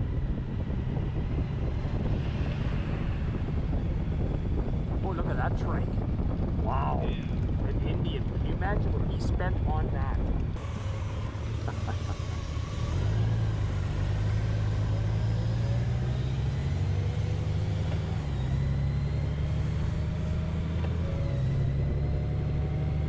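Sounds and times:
vehicle engine and road rumble: 0:00.0 - 0:23.0
faint rising whine: 0:10.3 - 0:23.0.

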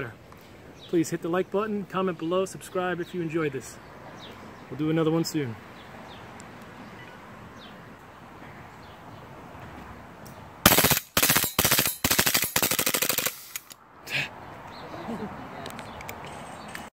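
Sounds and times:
airsoft pistol firing bursts: 0:10.6 - 0:13.7.

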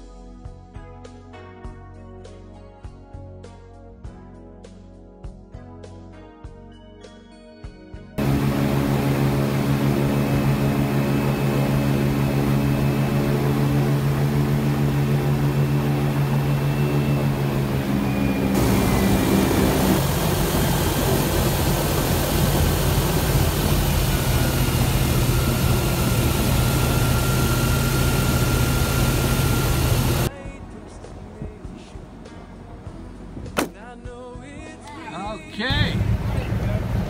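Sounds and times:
airboat engine and propeller drone: 0:08.2 - 0:30.3, 0:35.6 - 0:37.0.

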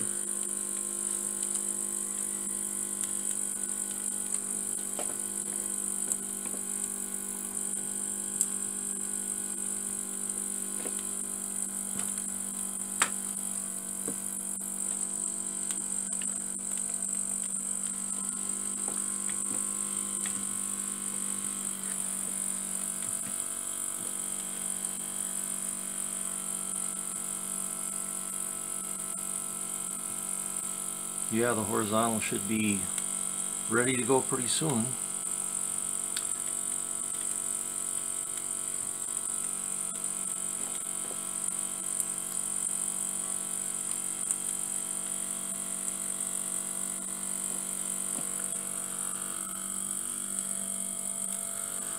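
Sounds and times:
low electrical hum: 0:00.0 - 0:51.9
high hiss: 0:33.7 - 0:35.0.

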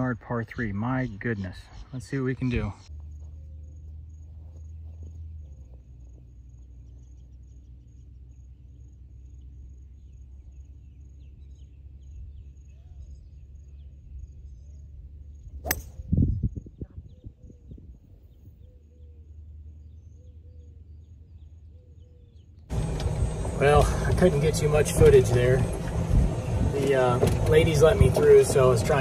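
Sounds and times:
faint bird chirps: 0:00.4 - 0:22.6
golf club striking ball: 0:15.6 - 0:16.1
steady low rumble: 0:22.7 - 0:29.0.

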